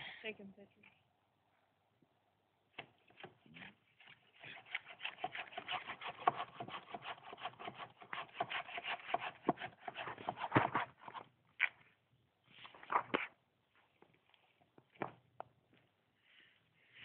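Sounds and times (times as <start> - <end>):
hand saw cutting wood: 3.2 - 11.2.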